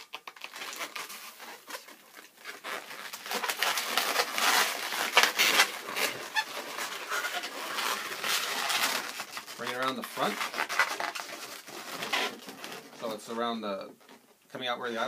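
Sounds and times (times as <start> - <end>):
balloons squeaking against hands: 0.0 - 13.2.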